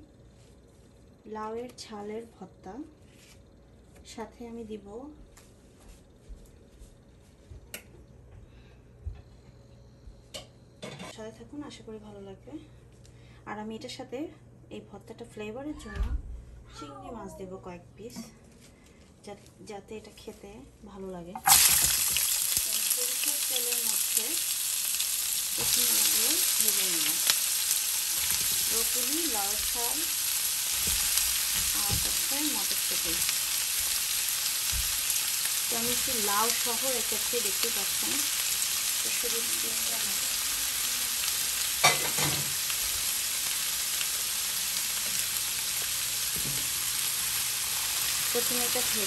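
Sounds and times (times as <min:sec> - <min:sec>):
vegetables sizzling in hot oil: 0:21.4 - 0:49.0.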